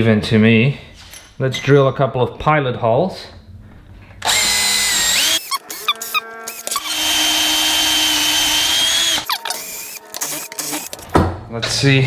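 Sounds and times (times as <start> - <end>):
cordless drill motor whine: 4.2 - 11.0.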